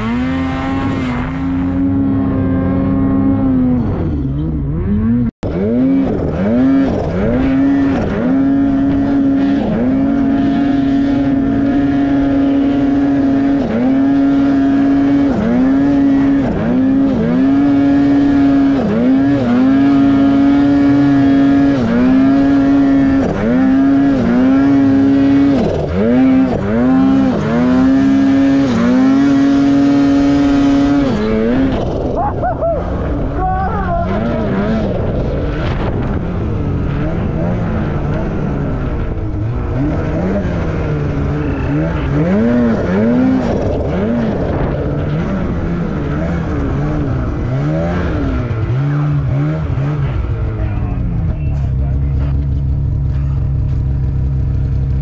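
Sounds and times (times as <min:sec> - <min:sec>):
snowmobile engine revving: 0:00.0 - 0:52.5.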